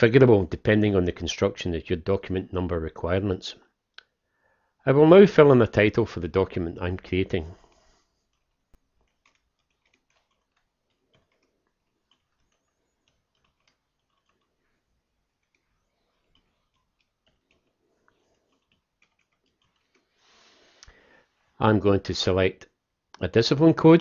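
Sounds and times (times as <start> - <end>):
faint keyboard typing clicks: 7.5 - 21.0.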